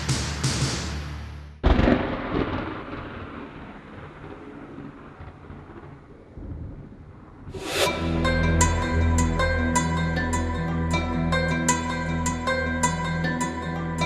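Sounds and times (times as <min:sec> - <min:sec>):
thunderclap rumbling: 0:01.6 - 0:08.6
storm noise: 0:01.6 - 0:10.2
low hum: 0:07.5 - 0:14.0.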